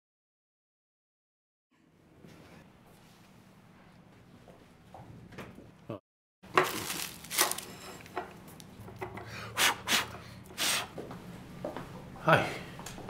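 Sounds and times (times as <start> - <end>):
paper packets ripping: 6.5 - 7.8
footsteps: 10.9 - 13.0.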